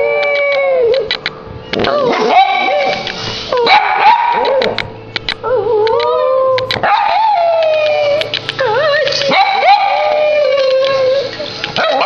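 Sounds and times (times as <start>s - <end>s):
dog howling: 0.0s - 1.1s, 1.8s - 4.8s, 5.4s - 12.0s
dog yipping: 1.8s - 4.8s, 5.4s - 12.0s.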